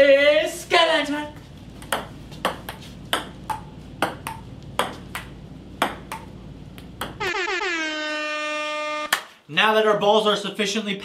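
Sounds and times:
ping-pong ball clicking: 1.8s - 7.2s
loud held tone: 7.2s - 9.2s.

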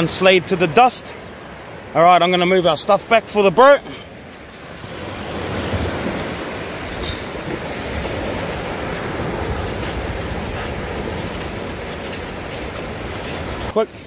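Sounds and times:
waves breaking on beach: 0.0s - 14.0s
wind rumbling on microphone: 4.2s - 14.0s.

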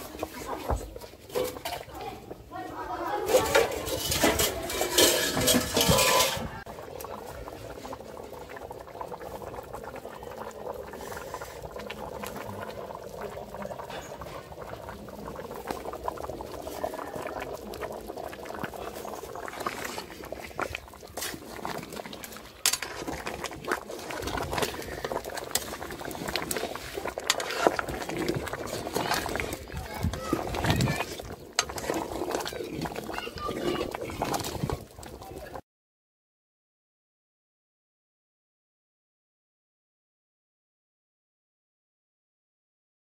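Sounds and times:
sauce boiling and bubbling: 0.0s - 35.6s
metal ladle stirring in pot: 1.0s - 1.9s, 3.2s - 10.1s, 10.8s - 35.4s.

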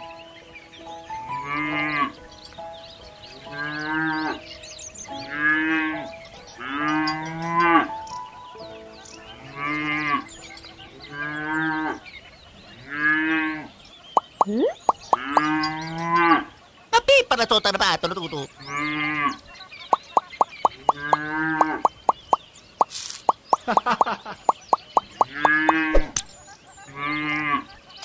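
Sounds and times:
faint background music: 0.0s - 22.8s
cows mooing: 1.4s - 2.1s, 3.5s - 4.5s, 5.2s - 8.0s, 9.4s - 10.3s, 11.0s - 12.1s, 12.7s - 13.8s, 15.1s - 16.5s, 18.6s - 19.4s, 20.8s - 21.9s, 26.9s - 27.7s.

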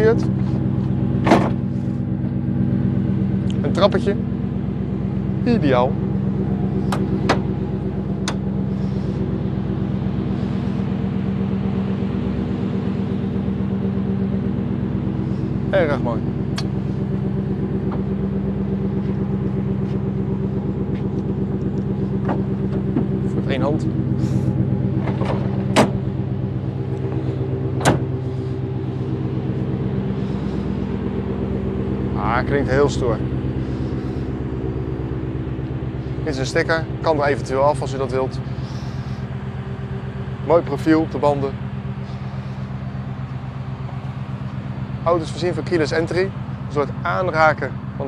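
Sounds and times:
truck engine idling: 0.0s - 48.0s
tailgate clacks: 1.2s - 1.7s, 6.9s - 7.5s, 8.2s - 8.5s, 21.8s - 23.2s, 24.9s - 26.2s, 27.1s - 28.3s.

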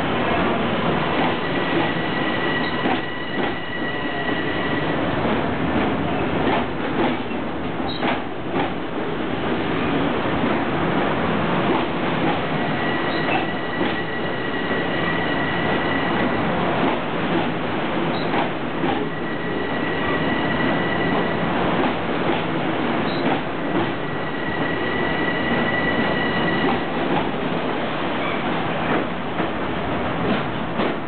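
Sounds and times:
high squeal: 24.2s - 26.7s.

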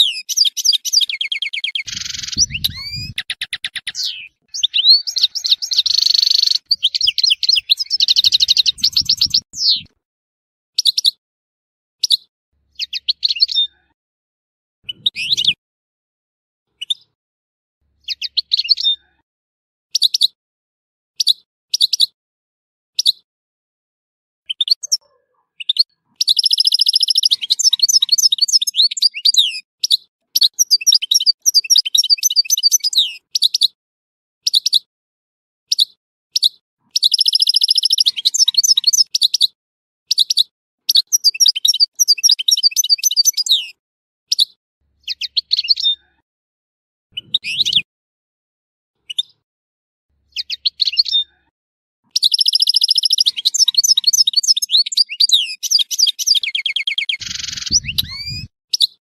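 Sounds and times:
goldfinch singing: 0.0s - 9.9s, 14.9s - 15.6s, 25.7s - 33.6s, 37.0s - 39.4s, 40.1s - 43.7s, 47.2s - 47.8s, 52.2s - 58.9s.

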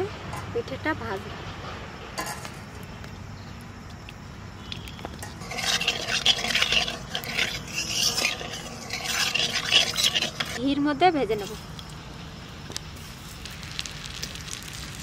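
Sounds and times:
metal spatula scraping a wok: 5.2s - 10.7s.

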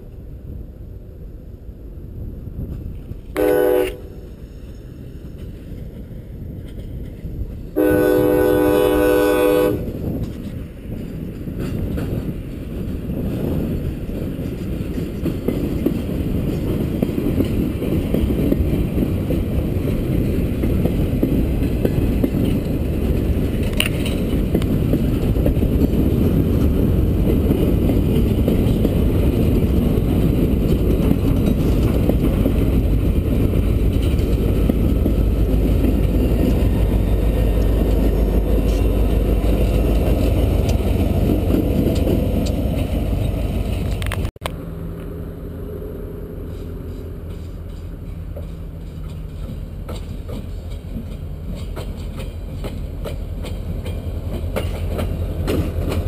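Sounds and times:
train wheels rumbling on rail: 0.0s - 56.0s
train chime horn blasts: 3.4s - 4.3s, 7.8s - 9.9s.

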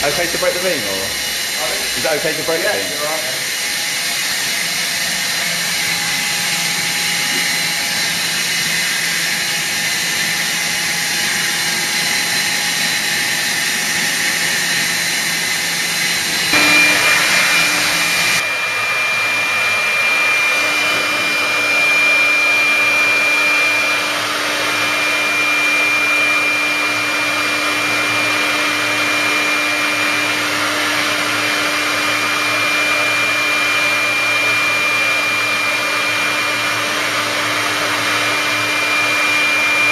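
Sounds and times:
high steady whine: 0.0s - 30.4s
router machine whirring: 0.0s - 39.9s.

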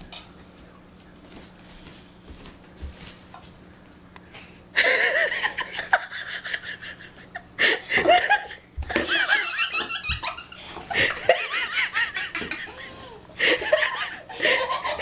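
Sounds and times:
person laughing hard: 4.8s - 15.0s.

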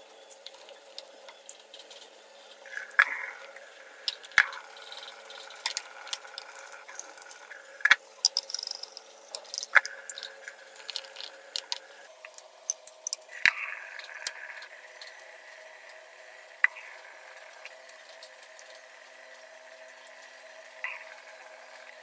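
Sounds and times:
water dripping: 8.3s - 14.4s.

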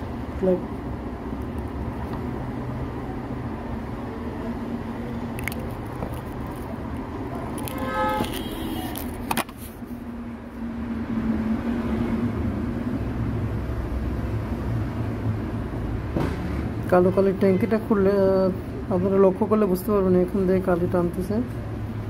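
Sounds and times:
road traffic rumble: 0.0s - 22.0s
vehicle horn: 7.6s - 9.1s.

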